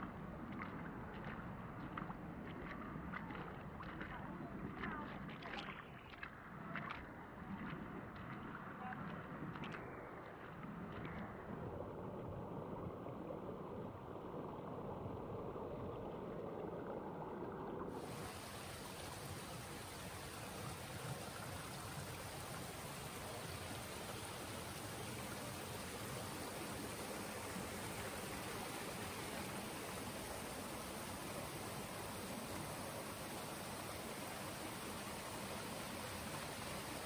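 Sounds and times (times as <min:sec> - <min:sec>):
river water rushing: 0:18.0 - 0:37.0.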